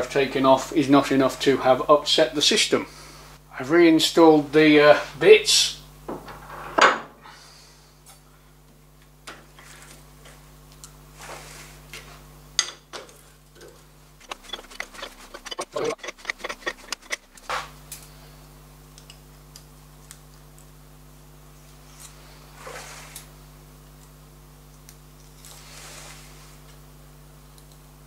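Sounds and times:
metal clicks and clinks: 0:14.2 - 0:17.5.

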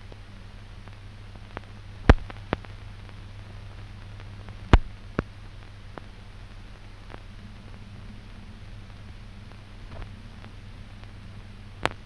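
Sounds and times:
film hiss: 0:00.0 - 0:12.0
low hum: 0:00.0 - 0:12.0
faint clicks: 0:11.8 - 0:12.0.

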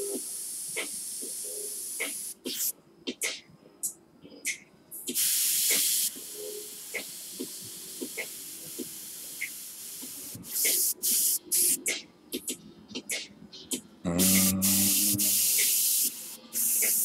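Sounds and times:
airbrush hissing: 0:05.2 - 0:06.2, 0:14.2 - 0:17.0.

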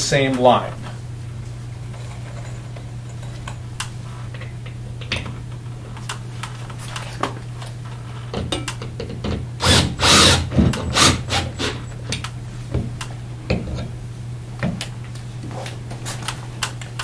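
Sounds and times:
steady low hum: 0:00.0 - 0:17.0
drill drilling: 0:09.6 - 0:11.9.

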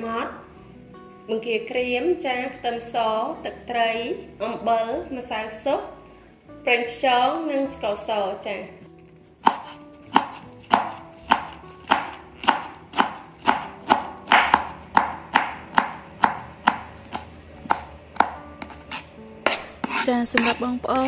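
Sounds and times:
knife chopping on wooden board: 0:09.2 - 0:21.0.

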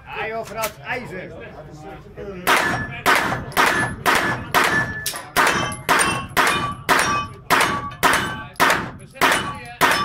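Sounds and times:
rifle shots echoing indoors: 0:02.5 - 0:10.0.

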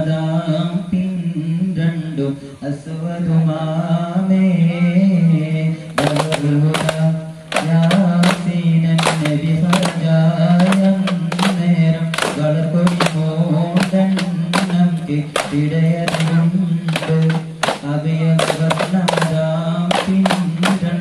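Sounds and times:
voices singing a chant: 0:04.6 - 0:21.0
frame drum strikes: 0:06.0 - 0:20.9.

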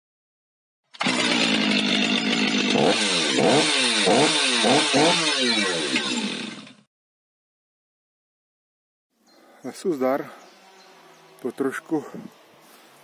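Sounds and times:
chainsaw running and revving: 0:00.9 - 0:06.9.

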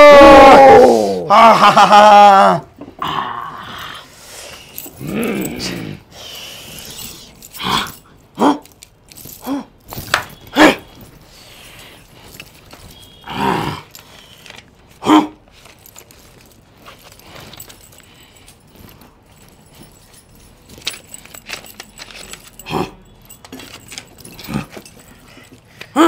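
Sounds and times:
metal chain jangling: 0:04.4 - 0:26.0
rustling: 0:06.4 - 0:25.9.

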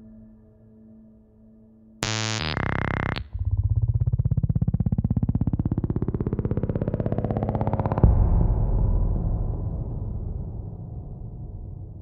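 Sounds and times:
sustained synthesized tones: 0:02.0 - 0:07.4
pulsing synthesized buzz: 0:02.0 - 0:07.9.

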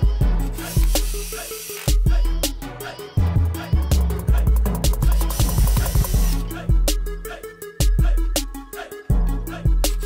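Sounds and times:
music with heavy bass beat: 0:00.0 - 0:10.0.

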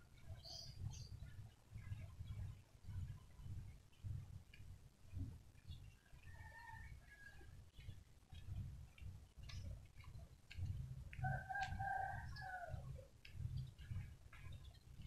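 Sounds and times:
rooster crowing: 0:06.3 - 0:07.5, 0:11.3 - 0:12.8.

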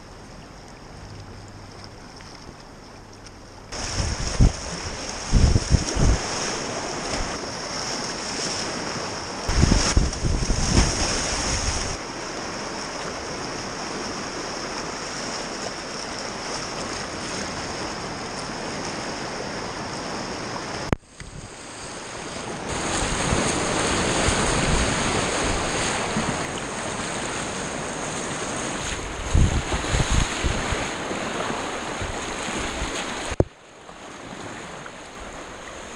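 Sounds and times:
wind buffeting microphone: 0:03.7 - 0:07.4, 0:09.5 - 0:12.0, 0:22.7 - 0:26.5, 0:28.8 - 0:33.5
whitewater rushing: 0:03.7 - 0:20.9, 0:21.6 - 0:33.5.

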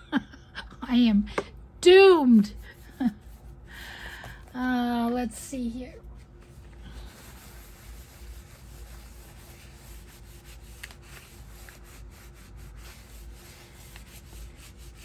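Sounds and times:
paper rubbing by hand: 0:06.8 - 0:15.0.

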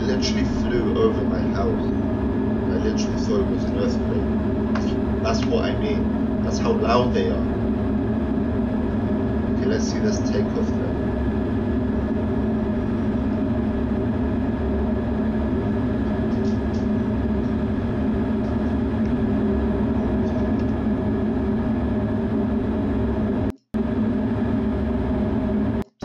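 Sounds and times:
jet engine hum: 0:00.0 - 0:26.0.

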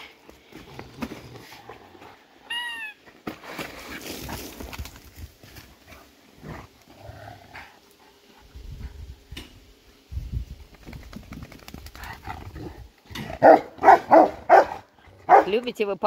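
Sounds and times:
dogs growling: 0:06.3 - 0:08.4
dogs barking loudly: 0:13.2 - 0:15.6.

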